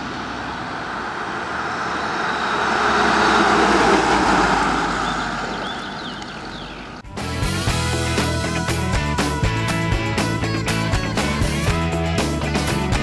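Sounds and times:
car driving past: 0:00.0 - 0:07.1.

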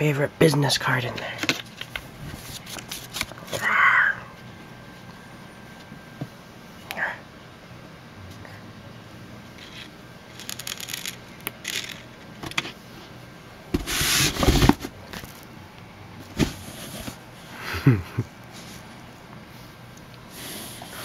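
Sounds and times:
cat scratching cardboard box: 0:13.8 - 0:14.9.

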